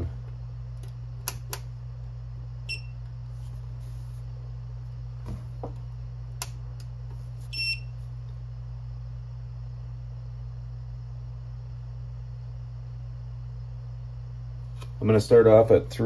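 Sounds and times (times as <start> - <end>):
steady low hum: 0.0 - 16.0
power supply beeping: 2.6 - 3.1, 7.5 - 8.0.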